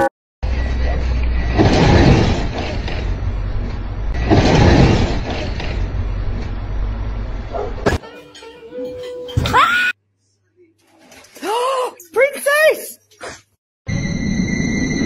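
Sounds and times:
van engine rumble: 0.4s - 7.9s.

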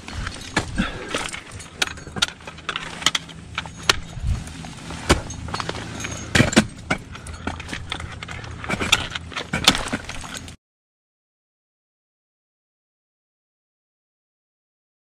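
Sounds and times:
metal climbing hardware clinking: 0.0s - 10.6s
ice axe striking hard ice: 4.9s - 7.8s, 8.7s - 10.6s.

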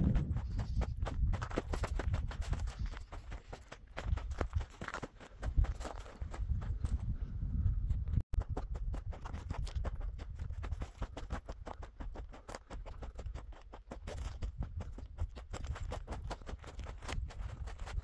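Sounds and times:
footsteps crunching on gravel: 0.0s - 6.6s.

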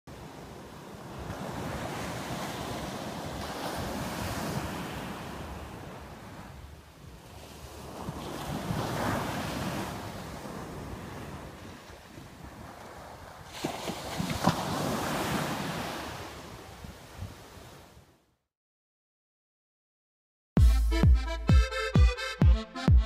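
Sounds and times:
waves breaking on sand: 0.1s - 18.0s.

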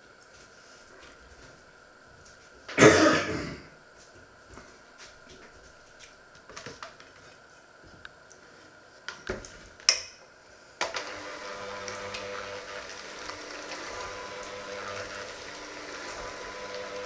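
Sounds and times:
person coughing: 2.7s - 3.8s.

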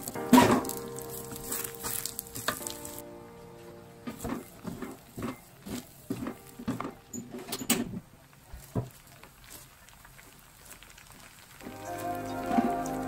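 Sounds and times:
food sizzling in a wok: 0.0s - 3.0s, 8.4s - 13.0s.

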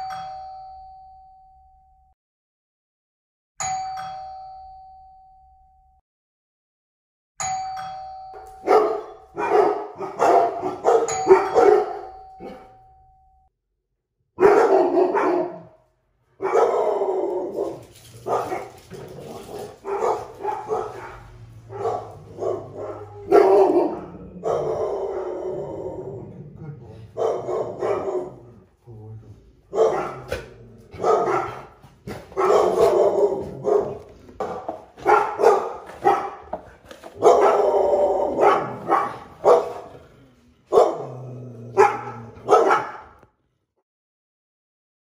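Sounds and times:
two-tone doorbell chime: 0.0s - 2.2s, 3.6s - 6.0s, 7.4s - 9.4s, 10.8s - 13.5s
dog barking: 8.6s - 12.7s, 14.4s - 25.5s, 27.0s - 28.6s, 29.7s - 40.0s, 40.7s - 43.3s.

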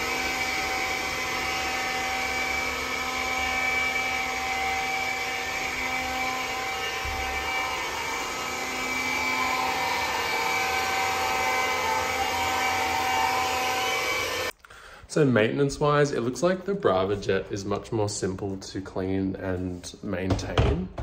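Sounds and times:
floor robot motor whine: 0.0s - 14.5s.

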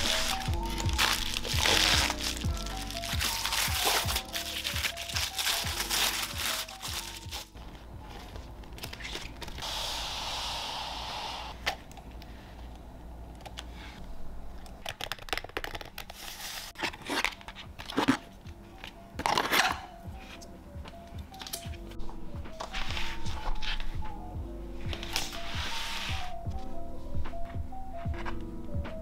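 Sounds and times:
plastic wrap crinkling: 0.0s - 9.6s, 14.7s - 18.2s
hiss: 9.6s - 11.6s.

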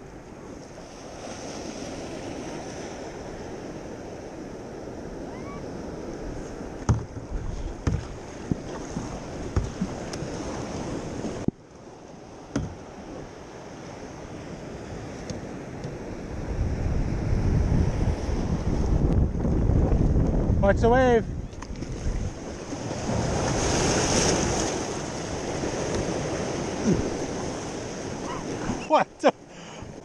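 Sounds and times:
wind on microphone: 0.0s - 11.5s, 14.1s - 28.8s
ocean surf breaking: 0.0s - 30.0s
sharp knocks: 6.8s - 9.9s, 12.5s - 12.8s.

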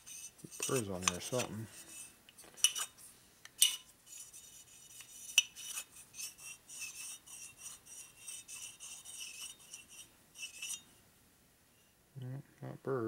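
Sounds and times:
metal scraping rubs: 0.0s - 11.0s.

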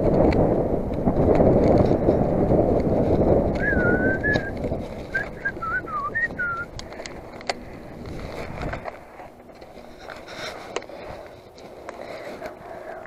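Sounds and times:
wind and bike rolling noise: 0.0s - 13.0s
person whistling: 3.6s - 4.5s, 5.1s - 6.7s.

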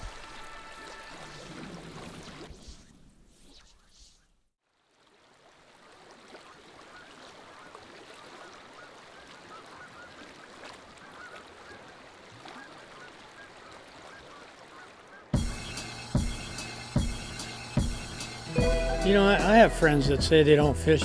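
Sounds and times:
distant bird calls: 6.5s - 18.5s.

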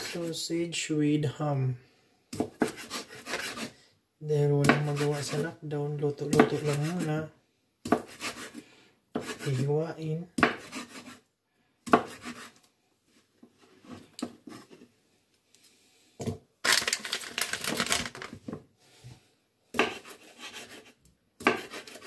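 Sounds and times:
knife cutting on wooden board: 2.3s - 3.8s, 4.6s - 5.4s, 6.3s - 7.1s, 7.8s - 9.7s, 10.4s - 11.2s, 11.8s - 12.6s, 13.6s - 14.9s, 19.7s - 22.0s.

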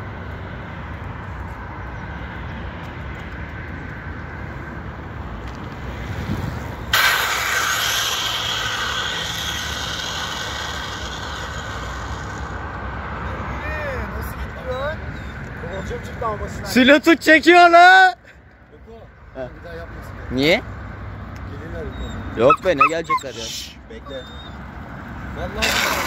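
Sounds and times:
low outdoor rumble: 3.7s - 16.6s
bicycle tyre skidding on asphalt: 6.2s - 12.8s, 25.4s - 26.0s.

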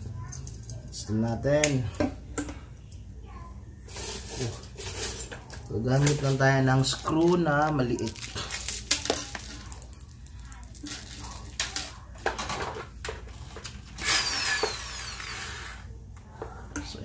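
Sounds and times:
plastic packet crinkling: 5.9s - 11.9s.

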